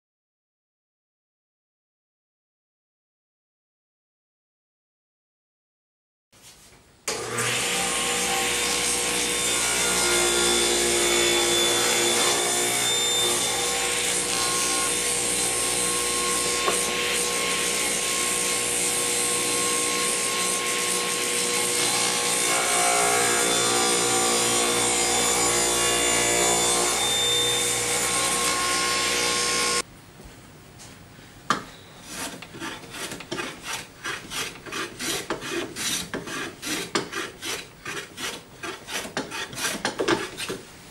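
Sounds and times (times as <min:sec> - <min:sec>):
table saw cutting wood: 0:07.1 - 0:29.8, 0:32.1 - 0:40.6
hand tool rasping wood: 0:08.1 - 0:25.8, 0:32.0 - 0:40.6.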